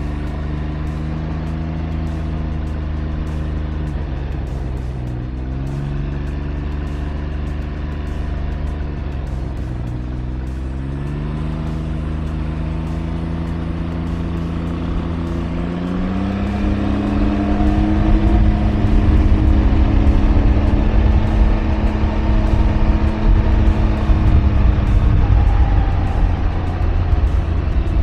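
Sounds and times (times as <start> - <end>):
roadster engine running: 0.0 - 28.0
wind rumble on microphone: 16.3 - 28.0.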